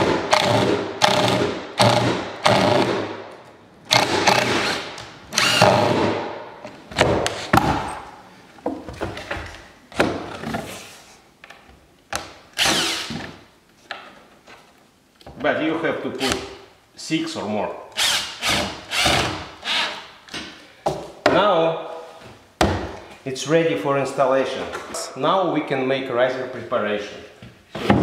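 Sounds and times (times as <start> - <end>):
cordless drill driving screws: 3.9 - 6.0, 12.6 - 13.2, 18.0 - 20.0.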